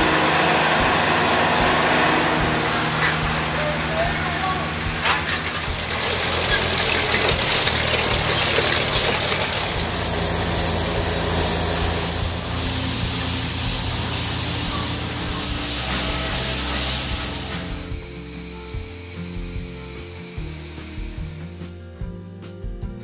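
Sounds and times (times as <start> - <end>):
loud continuous hiss: 0.0 - 22.7
engine running: 0.0 - 23.0.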